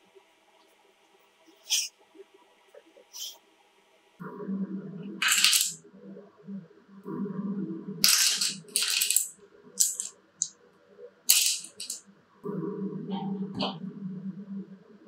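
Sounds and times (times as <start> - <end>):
wooden discs clattering on table: 5.2 - 5.8, 8.0 - 10.5, 11.3 - 12.0.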